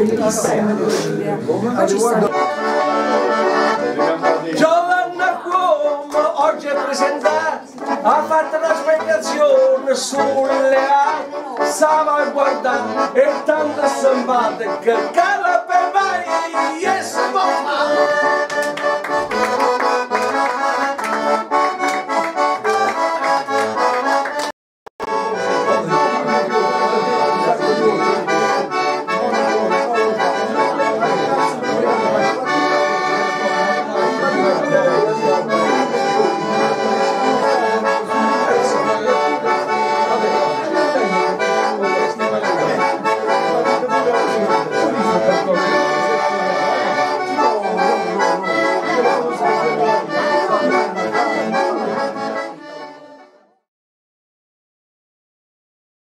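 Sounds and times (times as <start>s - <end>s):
button accordion folk tune: 0.0s - 53.7s.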